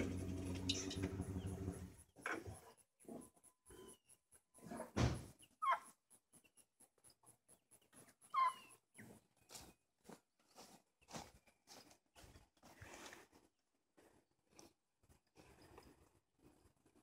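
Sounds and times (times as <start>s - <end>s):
loud thump: 5.0s - 5.3s.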